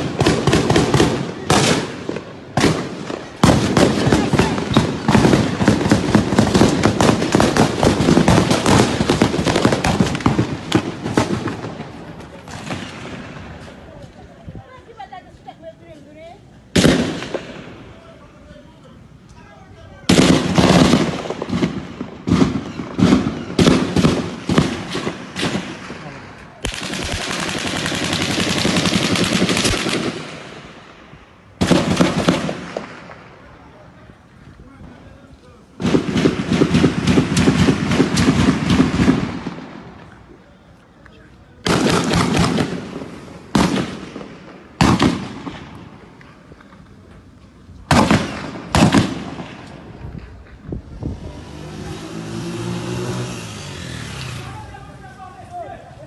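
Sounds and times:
rapid crackling and popping: 20.1 - 30.4
automatic gunfire bursts: 26.6 - 30.4.

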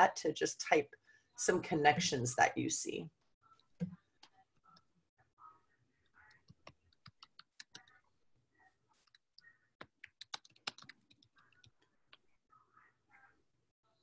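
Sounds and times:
faint keyboard typing: 6.2 - 8.0, 8.9 - 12.3.

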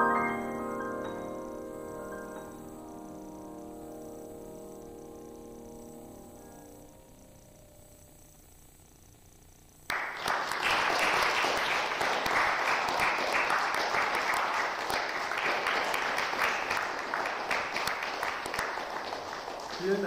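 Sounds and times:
audience applauding: 9.9 - 20.0.

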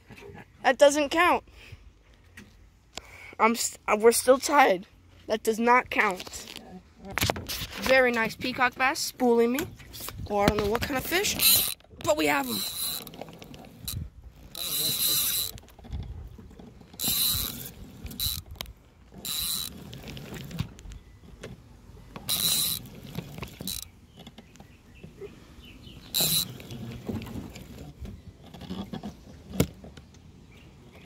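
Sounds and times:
fishing reel drag buzzing: 11.0 - 15.6, 16.8 - 20.6, 22.2 - 23.9, 26.0 - 27.9.

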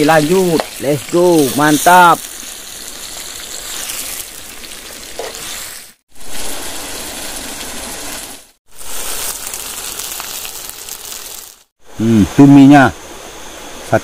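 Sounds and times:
chilies sizzling in hot oil: 0.0 - 11.7.

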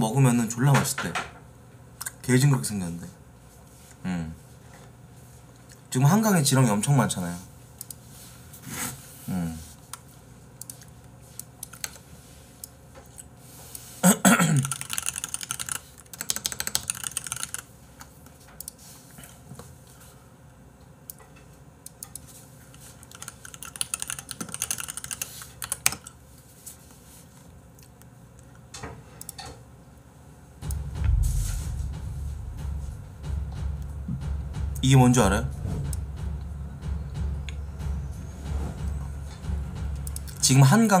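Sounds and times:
keyboard typing: 10.6 - 12.0, 14.6 - 17.7, 22.8 - 26.2
downward-sliding sound: 30.6 - 36.0
low rumble: 30.6 - 40.5.

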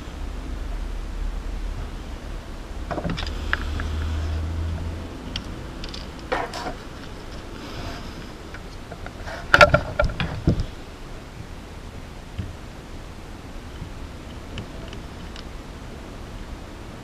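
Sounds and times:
low rumble: 0.0 - 9.0.

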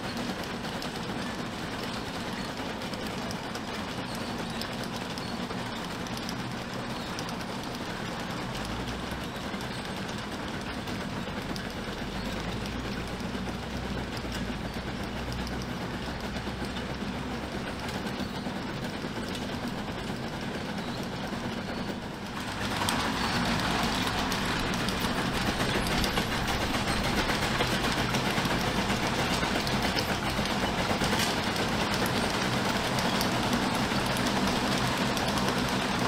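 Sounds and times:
machinery and tracks clanking: 0.0 - 36.0
steam engine rumbling: 7.6 - 36.0.

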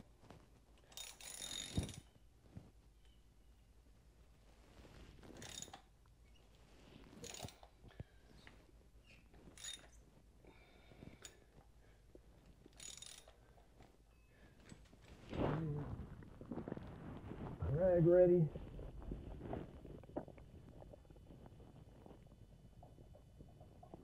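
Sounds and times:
hand ratchet clicking: 0.8 - 2.1, 7.2 - 7.7, 12.7 - 13.4.

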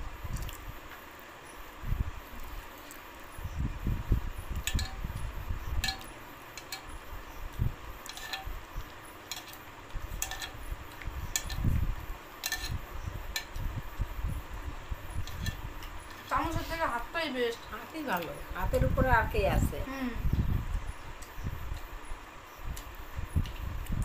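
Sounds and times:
soft eating noises: 0.2 - 18.8
metal bowl clinking: 4.6 - 5.0, 5.8 - 6.9, 8.0 - 8.5, 9.2 - 10.6, 12.4 - 13.6.

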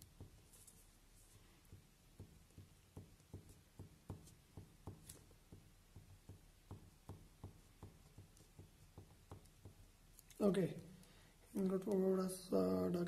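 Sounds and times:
pen tapping on paper: 0.0 - 0.6, 1.6 - 10.0.

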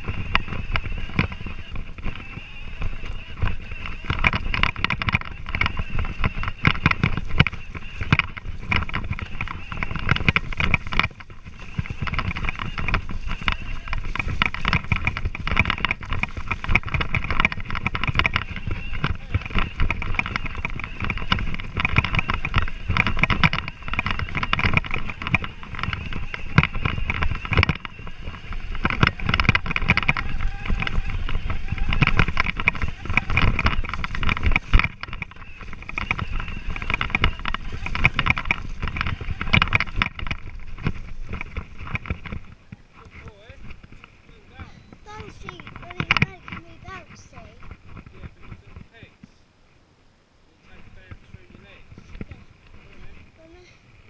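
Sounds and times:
wind buffeting the microphone: 0.0 - 49.6, 50.6 - 54.0
bike rumbling and rattling on grass: 0.0 - 54.0.

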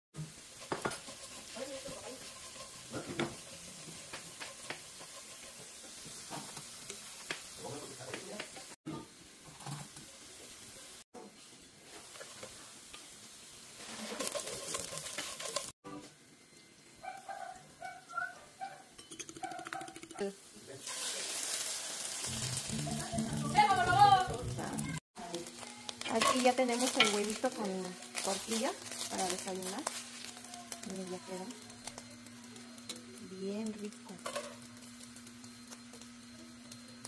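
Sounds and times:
food sizzling in oil: 0.2 - 18.1, 19.0 - 37.0
wooden spoon scraping a pan: 0.3 - 7.5, 13.8 - 15.8, 22.2 - 32.0.

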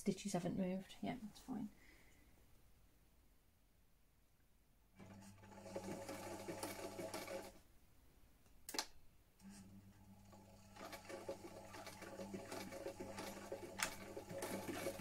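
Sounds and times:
sewing machine stitching: 5.0 - 7.6, 9.4 - 15.0.

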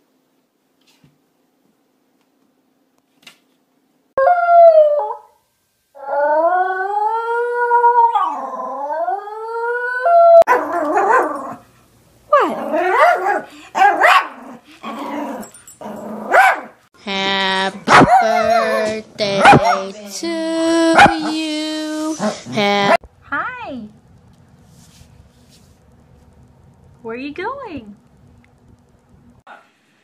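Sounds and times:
dog howling: 4.2 - 5.3, 6.0 - 11.6
dog giving rough howling barks: 10.4 - 11.6, 12.3 - 16.8.

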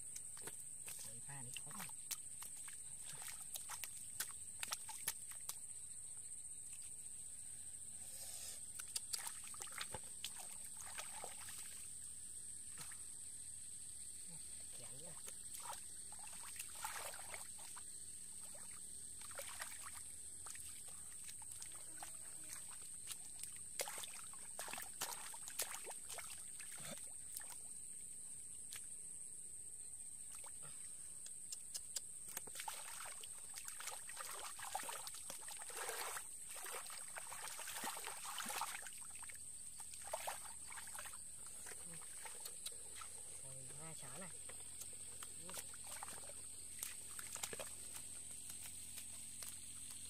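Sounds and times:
water dripping: 0.0 - 5.8, 8.7 - 11.8, 18.4 - 26.7, 31.2 - 50.0
hands splashing in muddy water: 0.1 - 5.7, 8.8 - 11.9, 15.0 - 17.8, 18.4 - 27.6, 31.6 - 50.0.

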